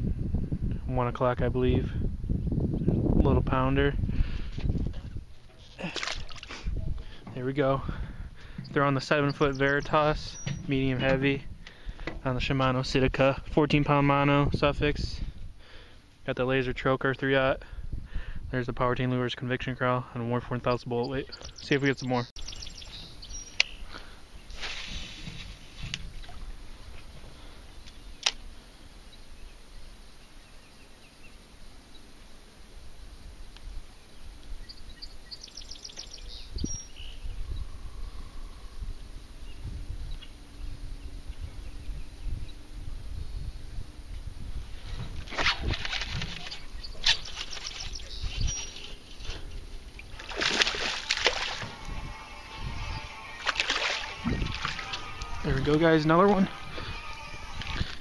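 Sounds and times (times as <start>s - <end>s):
wind rumble on microphone: 0.0s - 5.5s, 6.6s - 15.6s, 16.5s - 19.2s, 22.4s - 28.6s, 32.9s - 58.0s
fish splashing in water: 5.7s - 6.7s, 49.9s - 55.4s.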